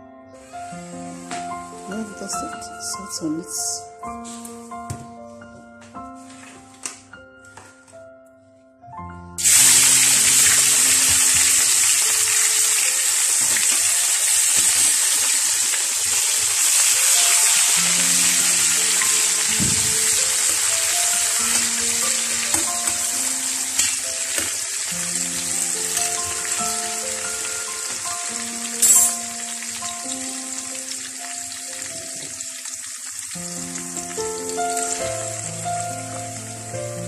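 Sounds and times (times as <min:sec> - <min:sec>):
background music: 0:00.0 - 0:10.9, 0:16.7 - 0:37.0
eggs sizzling in hot oil: 0:09.4 - 0:36.8.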